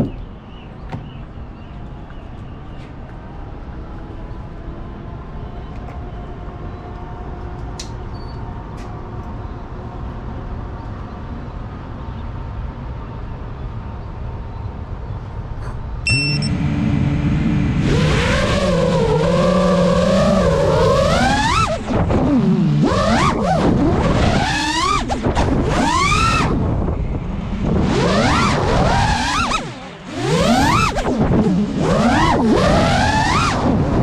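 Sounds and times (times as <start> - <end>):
outdoor background noise: 0.0 - 34.0
drone motors whining: 16.1 - 34.0.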